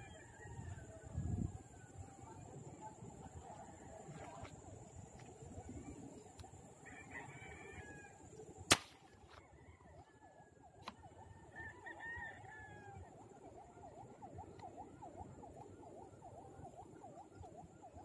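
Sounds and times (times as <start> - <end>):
airgun rifle firing: 8.7 - 9.1
faint wavering tone: 9.4 - 18.0.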